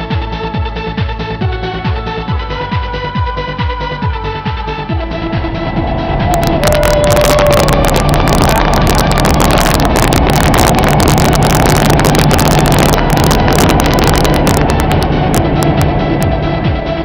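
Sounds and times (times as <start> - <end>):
wind buffeting microphone: 4.8 - 17.0
crackling from gusts on mic: 4.9 - 17.0.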